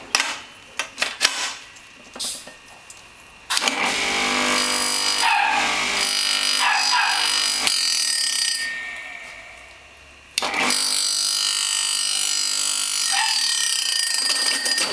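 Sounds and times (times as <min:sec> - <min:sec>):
juicer motor whining: 0:03.6 - 0:07.6, 0:10.4 - 0:10.9.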